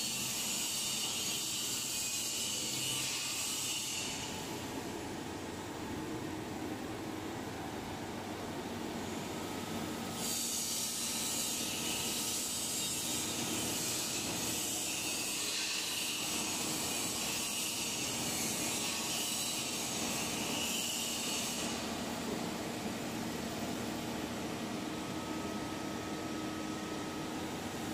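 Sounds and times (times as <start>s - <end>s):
compressor mechanical hum: 0.0s - 27.9s.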